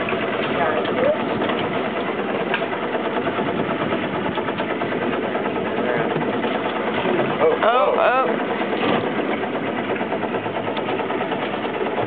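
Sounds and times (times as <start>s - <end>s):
boat engine idling: 0.0s - 12.0s.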